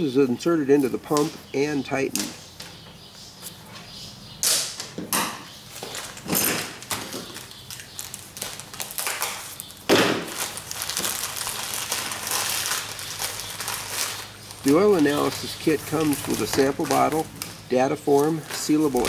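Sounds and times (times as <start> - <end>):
foil pouch crinkling: 5.7 - 19.0
plastic tubing rustling and scraping: 10.3 - 19.0.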